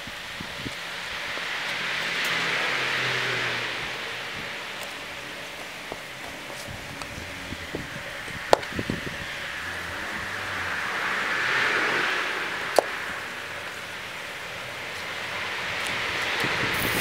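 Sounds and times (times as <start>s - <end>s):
hiss: 6.0s - 17.0s.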